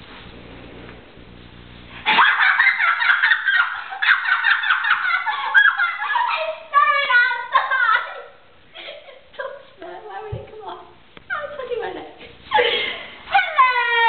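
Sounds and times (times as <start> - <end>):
low hum: 0.0 - 5.0
girl squealing and giggling: 2.1 - 8.4, 12.5 - 14.0.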